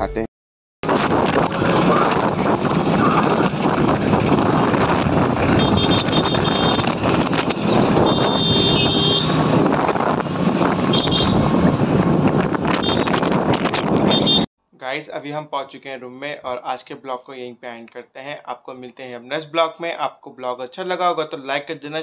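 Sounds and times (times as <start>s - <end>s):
rickshaw engine and road noise: 0.8s - 14.5s.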